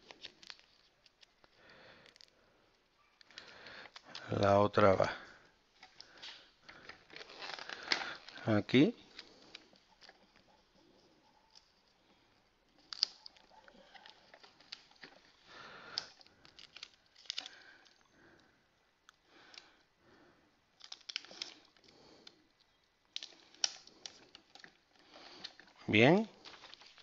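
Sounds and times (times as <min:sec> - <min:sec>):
sticker paper rustling: 0:26.3 - 0:27.0.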